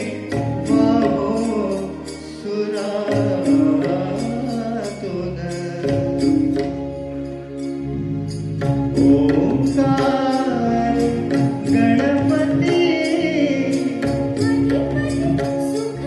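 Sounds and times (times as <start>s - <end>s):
man singing into a microphone: 0.0s - 6.6s, 9.0s - 14.4s
percussion strikes: 0.0s - 16.0s.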